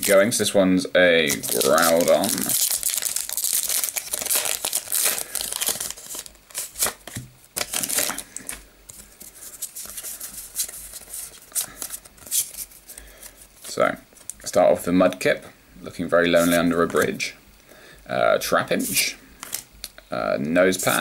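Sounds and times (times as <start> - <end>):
foil pack tearing and crinkling: 1.3 - 8.6.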